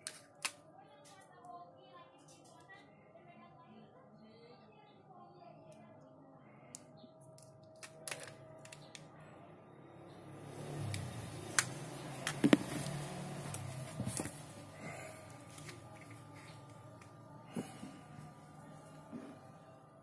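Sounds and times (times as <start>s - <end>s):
faint low hum: 0.2s - 20.0s
plastic clicks and taps: 11.0s - 14.3s.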